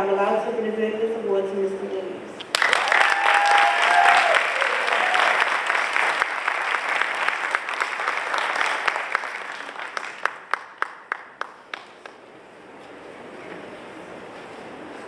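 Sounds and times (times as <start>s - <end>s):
audience applause: 2.5s - 12.2s.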